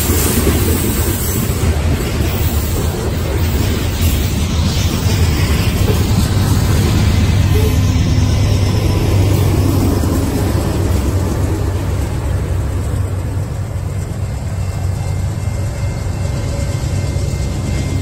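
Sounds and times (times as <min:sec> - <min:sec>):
freight cars rumbling on rails: 0:00.0 - 0:18.0
locomotive engines droning: 0:00.0 - 0:18.0.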